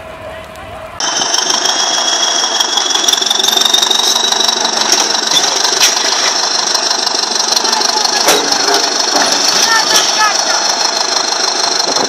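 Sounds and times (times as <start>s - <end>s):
road roller engine running: 0.0s - 12.0s
high whine rising in pitch: 1.0s - 5.7s.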